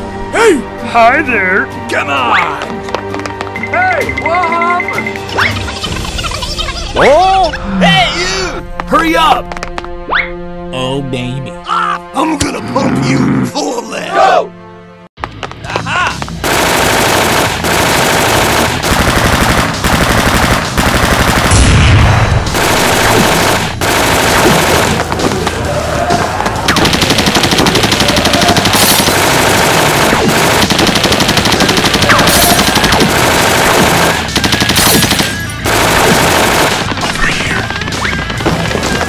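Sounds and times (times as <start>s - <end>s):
background music: 0.0s - 39.0s
machine-gun fire: 16.4s - 25.4s, 26.5s - 39.0s.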